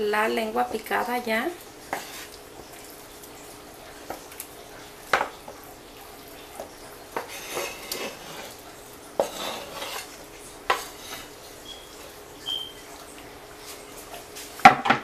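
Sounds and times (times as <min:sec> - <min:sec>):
knife scraping wooden board: 0:01.9 - 0:02.3, 0:07.2 - 0:08.6, 0:09.2 - 0:11.3.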